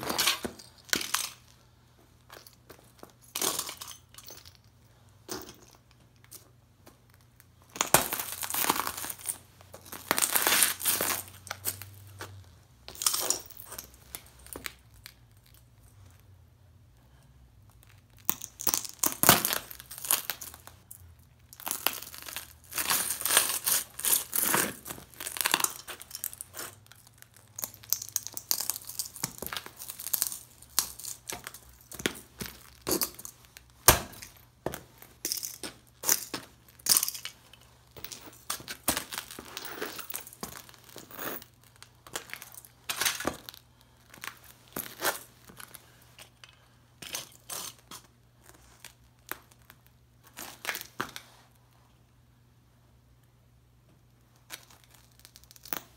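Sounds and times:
boots crushing plastic and metal parts: 0:00.0 - 0:01.6, 0:07.6 - 0:14.8, 0:18.2 - 0:20.8, 0:21.5 - 0:46.4.

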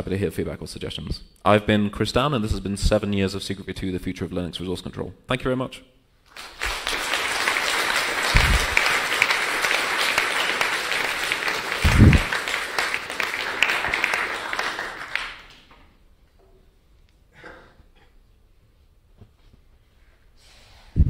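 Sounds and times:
audience applauding: 0:06.3 - 0:15.8
dull low thumps: 0:08.3 - 0:08.8, 0:11.8 - 0:12.3.

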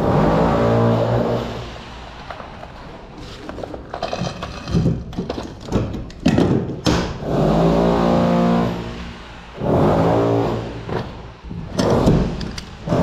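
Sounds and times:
metallic clicks of hand riveter: 0:11.7 - 0:12.8.

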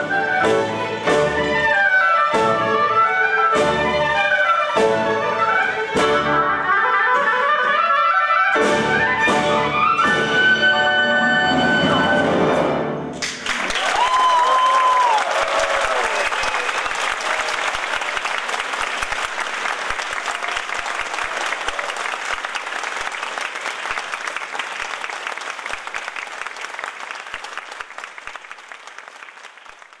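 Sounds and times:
audience applauding: 0:13.2 - 0:30.0.

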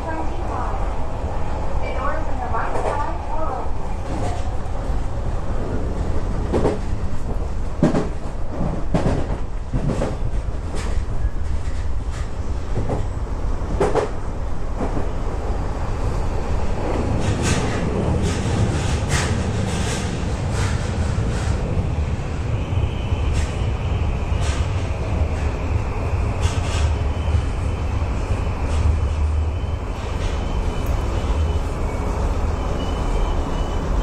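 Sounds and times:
train rumbling: 0:00.0 - 0:34.0.

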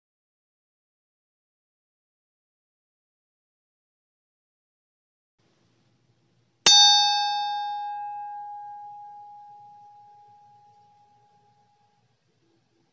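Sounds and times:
bright chime ding: 0:06.7 - 0:11.9.

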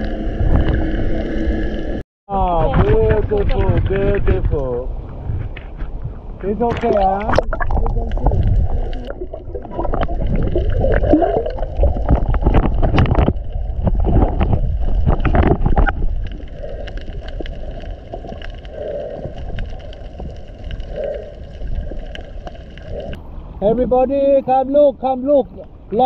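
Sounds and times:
water sloshing and splashing: 0:05.2 - 0:23.6
bubbling gurgles: 0:06.9 - 0:23.2.

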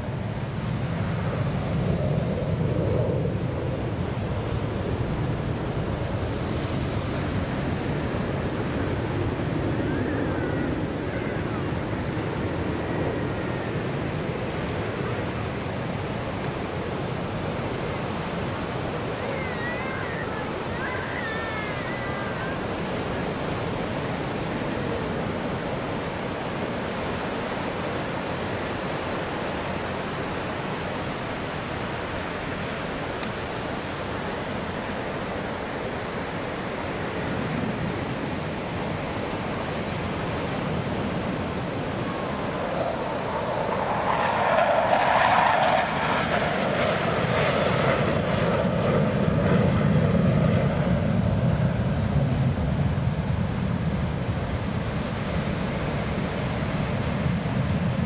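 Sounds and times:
ocean surf breaking: 0:05.0 - 0:12.9.

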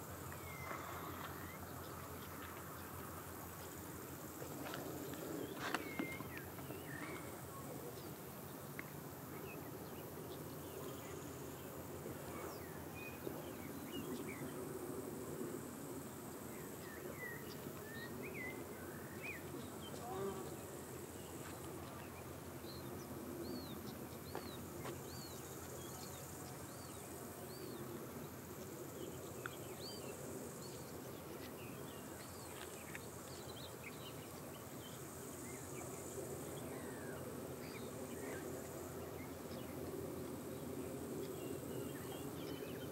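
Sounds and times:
birds chirping: 0:05.0 - 0:08.2.

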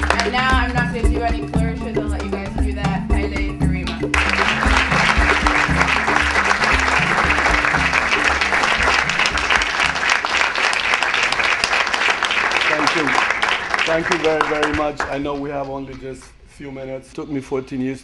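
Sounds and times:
music with repeating bass line: 0:00.0 - 0:10.3
audience applause: 0:04.1 - 0:15.9.

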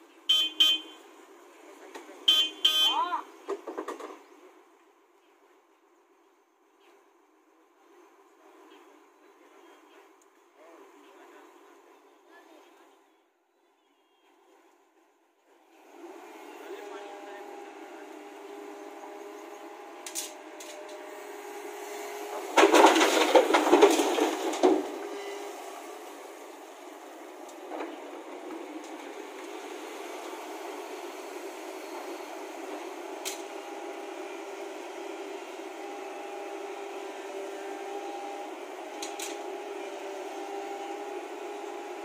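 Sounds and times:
excavator engine running: 0:14.5 - 0:42.0
earth and stones dumped into truck: 0:22.4 - 0:25.2.

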